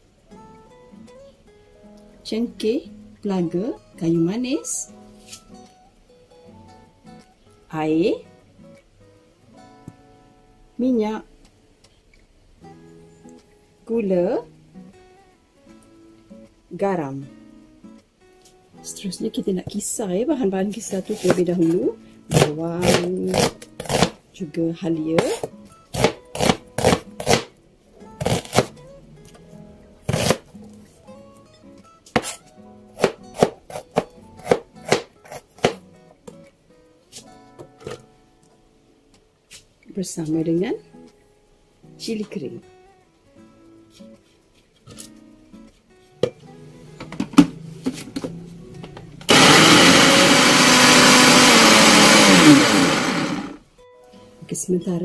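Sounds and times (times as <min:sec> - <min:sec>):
knife chopping on plastic board: 0:22.3 - 0:24.2, 0:25.2 - 0:27.5, 0:32.2 - 0:32.4, 0:33.0 - 0:35.8
blender motor grinding: 0:49.3 - 0:53.6.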